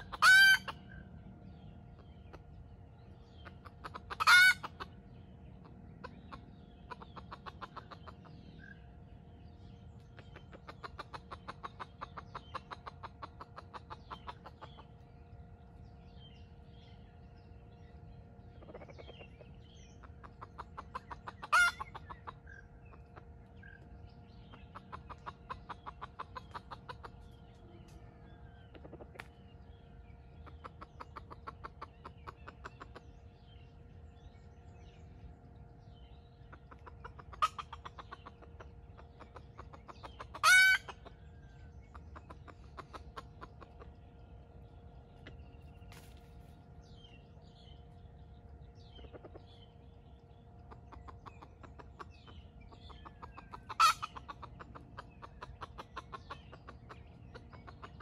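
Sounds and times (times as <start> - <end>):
rooster clucking: 0.0 - 0.9, 3.4 - 4.9, 6.0 - 8.3, 10.2 - 14.9, 20.0 - 23.2, 24.4 - 28.0, 28.7 - 29.3, 36.5 - 41.2, 50.8 - 58.0
faint steady hum: 0.0 - 58.0.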